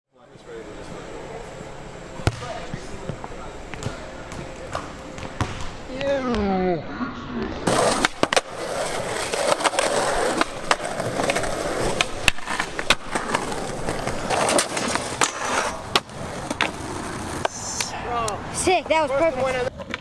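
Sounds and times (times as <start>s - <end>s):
skateboard wheels rolling on concrete: 7.4s - 20.0s
skateboard trucks grinding on ledge: 7.6s - 17.7s
skateboard popping and landing: 7.6s - 17.9s, 19.4s - 20.0s.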